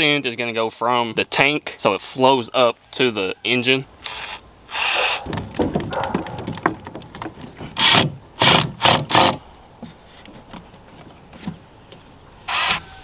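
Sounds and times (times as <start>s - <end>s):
cordless drill driving screw: 4.0s - 5.2s, 7.8s - 9.4s, 12.5s - 13.0s
hose and clamps rattling: 4.8s - 9.4s.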